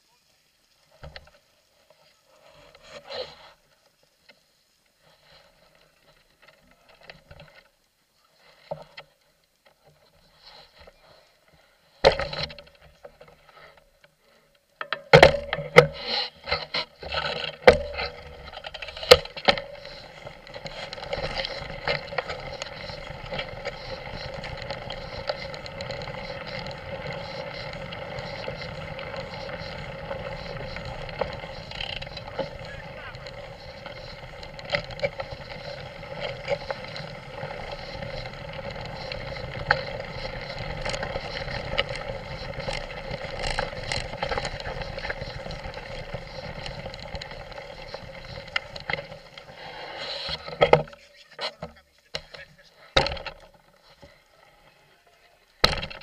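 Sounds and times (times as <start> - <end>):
bike tyres rolling on gravel: 0.8 - 56.0
bike knocking over rough ground: 12.0 - 13.5, 14.8 - 54.2, 55.6 - 56.0.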